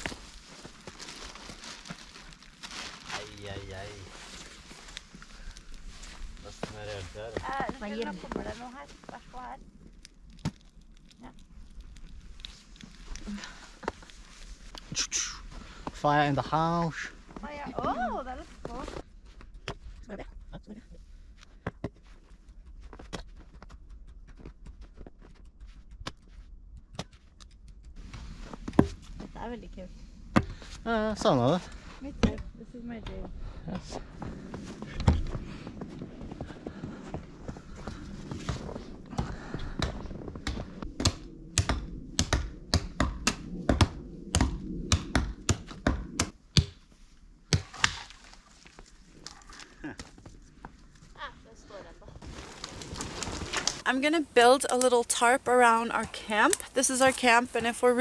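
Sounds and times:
campfire crackling and popping: 0:00.0 - 0:18.8, 0:34.0 - 0:51.1, 0:52.2 - 0:58.0
axe chopping tree trunk: 0:41.0 - 0:46.8.

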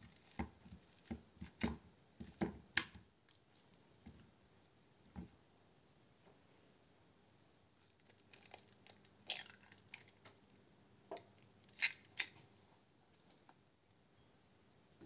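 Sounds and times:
egg cracking: 0:07.8 - 0:10.5, 0:11.6 - 0:12.4.

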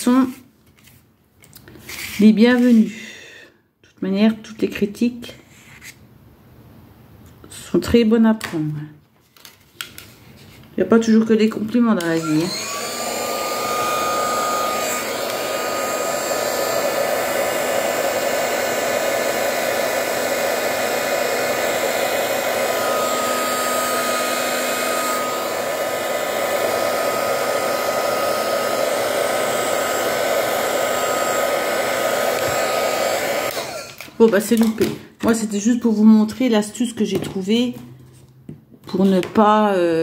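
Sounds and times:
heat gun blowing with whine: 0:12.0 - 0:34.1.

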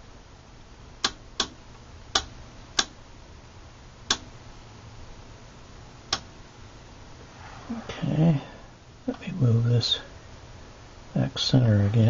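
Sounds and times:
faint low hum: 0:00.0 - 0:12.0
rotary switch clicking: 0:01.0 - 0:03.0.

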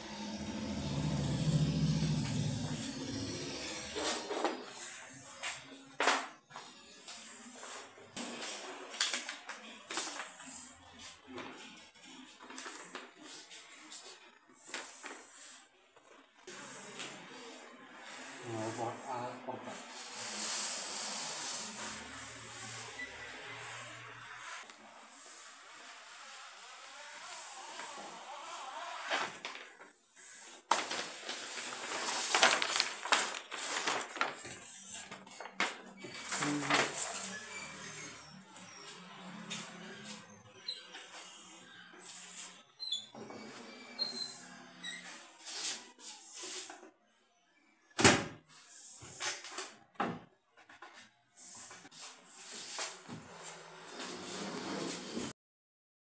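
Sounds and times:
paper and plastic film rustling: 0:30.6 - 0:35.7.

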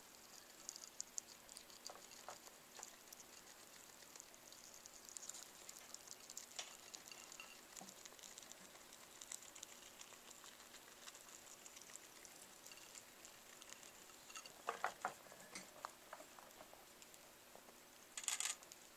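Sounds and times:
rats chewing and crunching: 0:00.0 - 0:18.9
knocks and clatters of bowl: 0:14.2 - 0:15.8.

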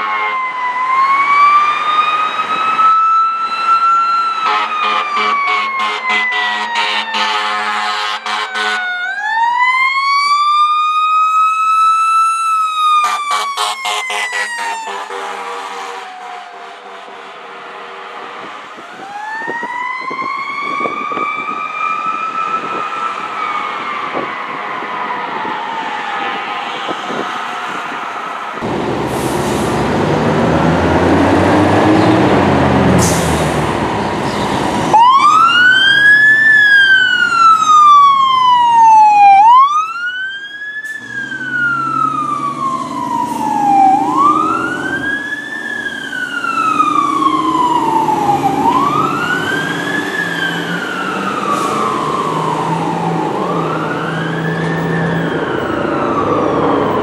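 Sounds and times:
siren wailing: 0:00.0 - 0:28.7, 0:34.9 - 0:57.0
fire truck diesel engine running: 0:28.6 - 0:57.0.

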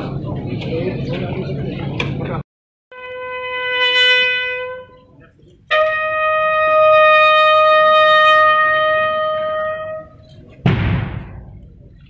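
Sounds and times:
bugle long held note: 0:02.9 - 0:10.2.

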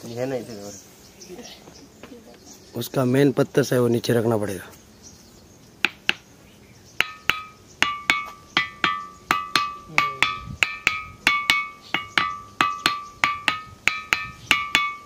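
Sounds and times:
stone striking ringing boulder: 0:07.0 - 0:15.0.

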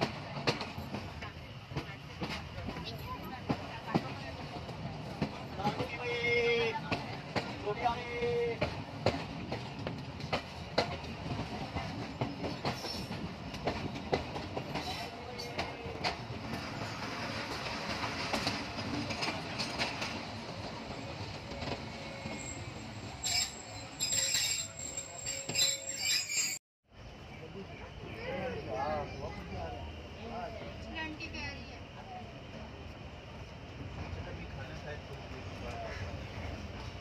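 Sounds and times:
train rumbling: 0:00.0 - 0:37.0
thin high squeal: 0:22.3 - 0:26.6.

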